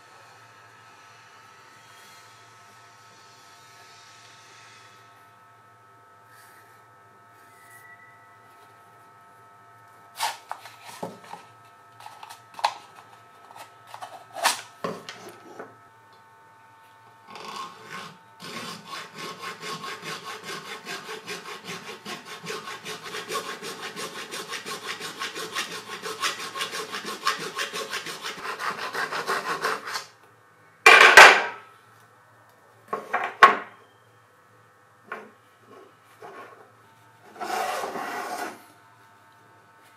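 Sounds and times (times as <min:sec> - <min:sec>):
hacksaw cutting plastic pipe: 0:17.3 - 0:30.1.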